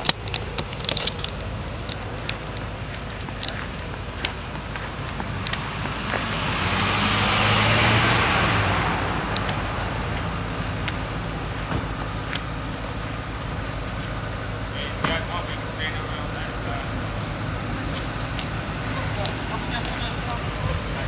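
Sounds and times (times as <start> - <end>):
sharp clicks: 0.0 - 6.2
low engine hum: 0.0 - 21.0
vehicle passing by: 3.4 - 21.0.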